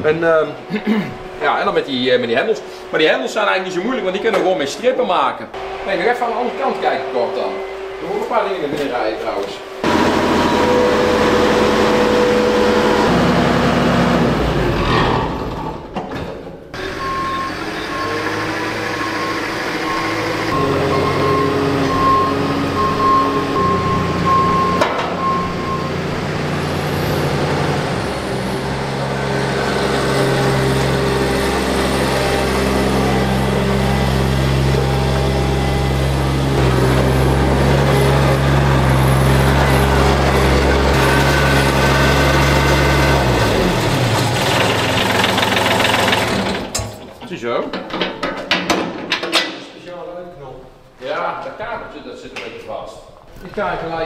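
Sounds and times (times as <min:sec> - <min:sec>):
diesel machine engine: 0:05.6 - 0:08.9, 0:09.6 - 0:16.0, 0:16.7 - 0:47.2
reversing alarm beeping: 0:16.8 - 0:26.2.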